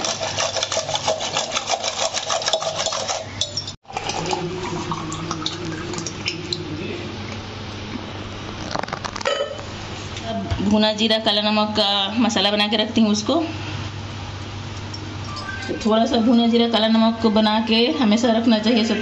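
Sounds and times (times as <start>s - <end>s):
whisk clinking against steel bowl: 0.0s - 3.8s
drink pouring into glass: 3.9s - 6.6s.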